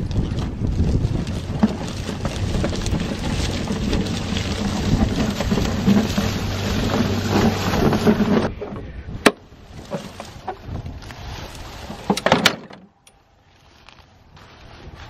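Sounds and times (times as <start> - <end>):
wind noise on microphone: 0.0 - 12.3, 14.2 - 15.0.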